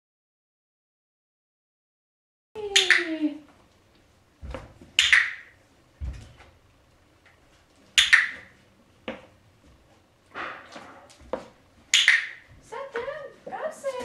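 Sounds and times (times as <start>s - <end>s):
soft footsteps on floor: 3.5s - 5.0s, 5.9s - 6.6s, 10.7s - 11.9s.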